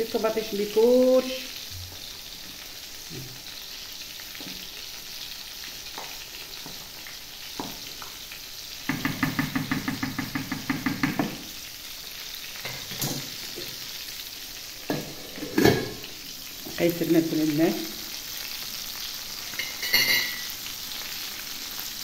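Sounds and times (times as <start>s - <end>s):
food sizzling in a pot: 0.0s - 22.0s
spoon knocking pot: 8.9s - 11.4s.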